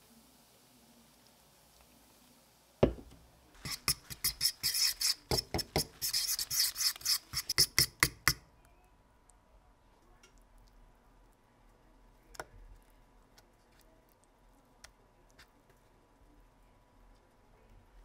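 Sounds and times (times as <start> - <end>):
fork whisking batter in bowl: 3.6 - 8.4.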